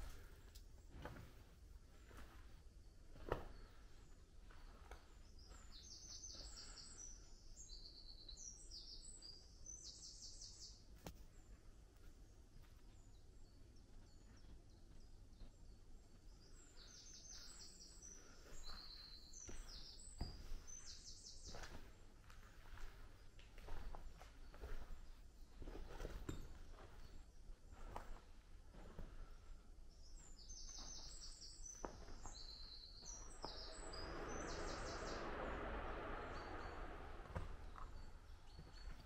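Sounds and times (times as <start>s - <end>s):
songbird singing: 2.7s - 22.0s, 29.9s - 39.0s.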